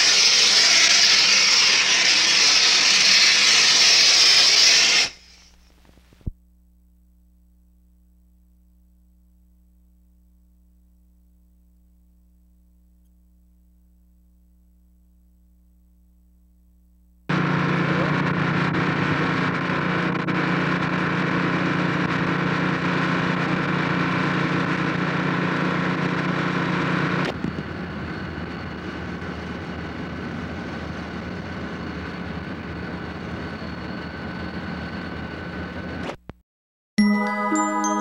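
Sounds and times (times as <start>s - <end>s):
mechanical drone: 0.0s - 5.2s, 17.3s - 36.2s
faint high whine: 27.2s - 36.2s.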